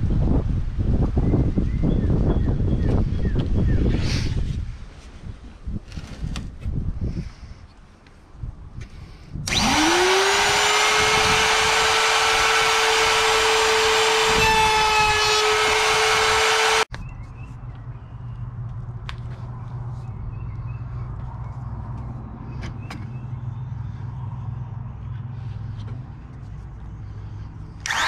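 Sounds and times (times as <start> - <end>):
wood router whining: 9.5 - 16.9.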